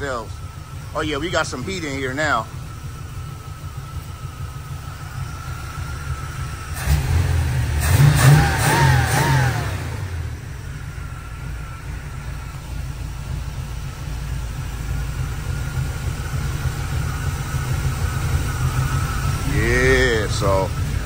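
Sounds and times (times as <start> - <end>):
engine idling through loud exhaust: 0.0 - 21.0.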